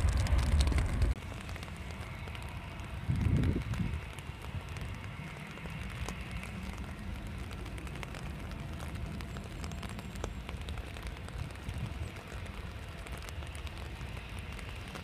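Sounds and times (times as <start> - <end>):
rain falling: 0.0 - 15.0
steady low rumble: 0.0 - 15.0.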